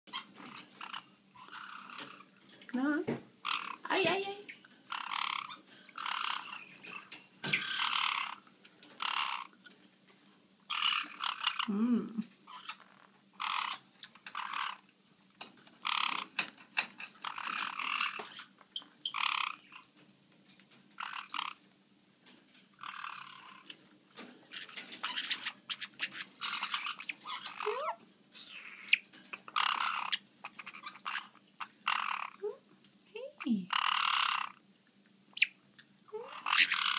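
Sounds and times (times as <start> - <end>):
parrots giving raspy calls: 0.1 - 2.6, 3.4 - 9.9, 10.6 - 15.0, 15.6 - 20.0, 20.9 - 21.7, 22.5 - 32.7, 33.3 - 34.7, 35.3 - 36.9.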